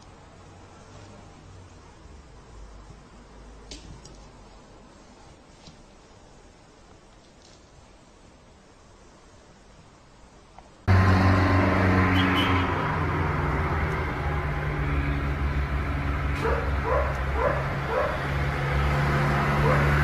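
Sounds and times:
vehicle engine drone: 10.8 - 20.0.

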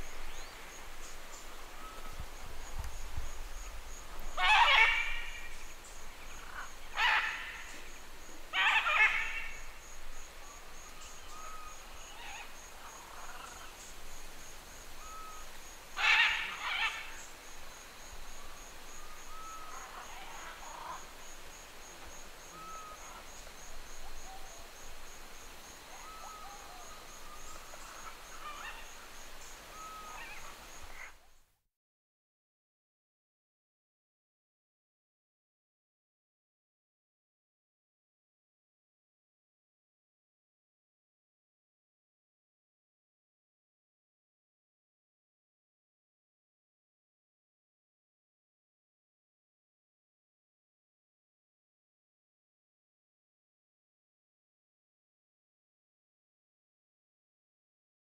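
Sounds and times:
macaw calling harshly: 4.2 - 7.9, 8.5 - 9.8, 15.0 - 17.3.

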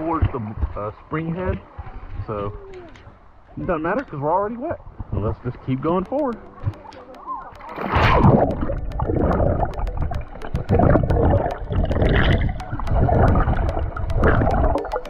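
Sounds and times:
small sharp clicks: 5.9 - 15.0
water rushing underwater: 6.4 - 15.0.

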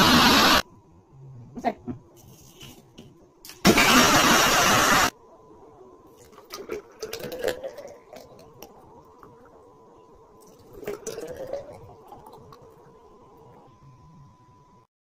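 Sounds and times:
thick liquid pouring: 10.4 - 12.7.

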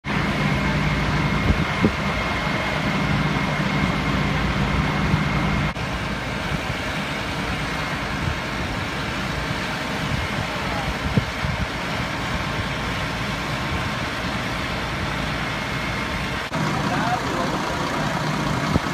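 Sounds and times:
fire engine idling: 0.0 - 18.9.

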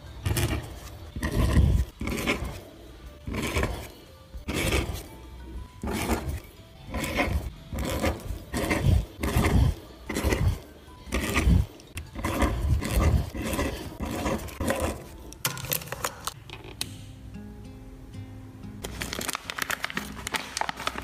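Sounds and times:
pen nib scratching on paper: 0.2 - 5.1, 5.8 - 15.4.

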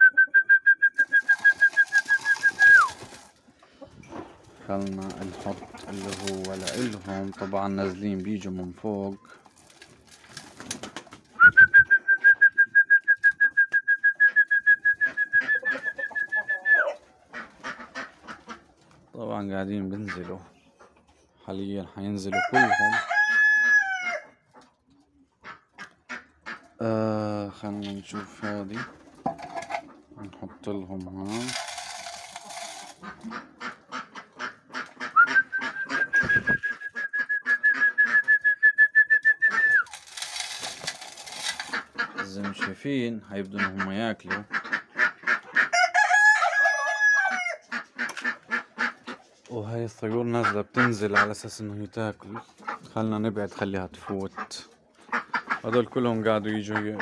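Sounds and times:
person whistling a trill: 0.0 - 2.9, 11.4 - 16.8, 35.2 - 39.9
pigeon wings fluttering: 1.0 - 3.4, 4.7 - 7.1, 9.5 - 11.8, 31.3 - 33.1, 39.5 - 41.9.

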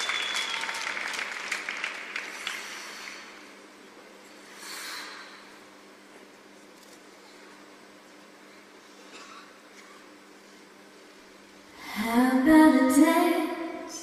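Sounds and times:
audience applauding: 0.0 - 3.2
low steady hum: 0.0 - 14.0.

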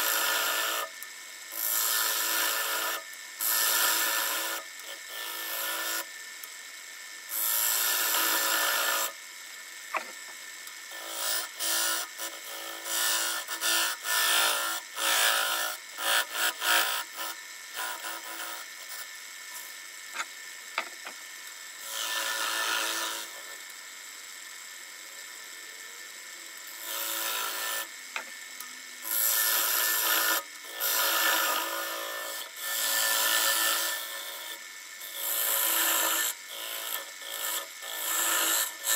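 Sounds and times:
wood lathe humming: 0.0 - 6.4, 7.3 - 9.2, 10.0 - 21.2, 21.8 - 24.4, 25.0 - 38.9
tool scraping spinning wood: 7.3 - 9.1, 9.8 - 23.6, 26.6 - 38.9.

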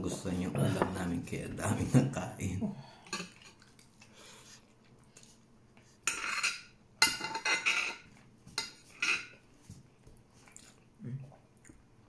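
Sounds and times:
tableware scraping and clinking: 6.0 - 9.4.

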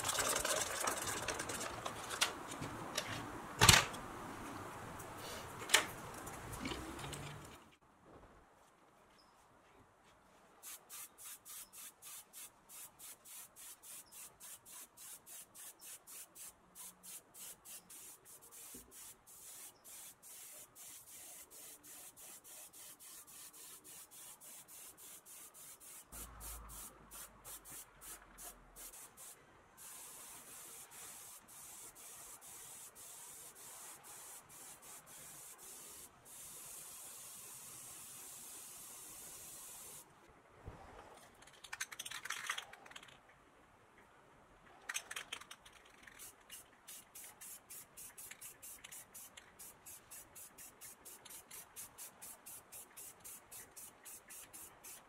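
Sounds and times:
spray gun hissing: 10.6 - 40.0.

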